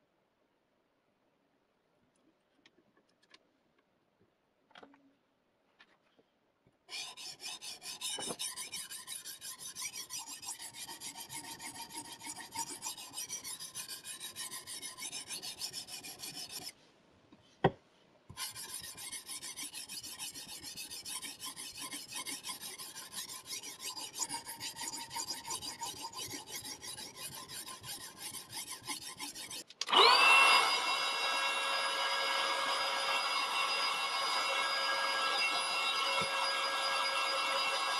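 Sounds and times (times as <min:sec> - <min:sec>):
sharpening stone rasping on knife edge: 0:06.9 - 0:16.8, 0:18.3 - 0:29.7
electric tool motor whining: 0:29.8 - 0:37.9.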